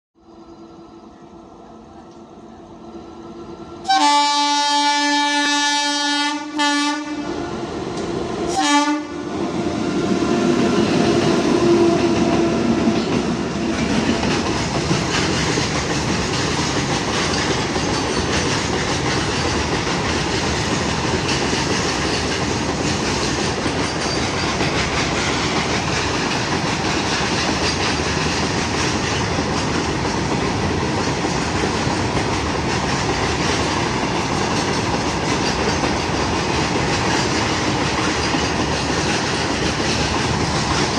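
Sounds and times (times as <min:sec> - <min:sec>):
locomotive horn: 0:03.3 - 0:07.5, 0:08.5 - 0:10.8.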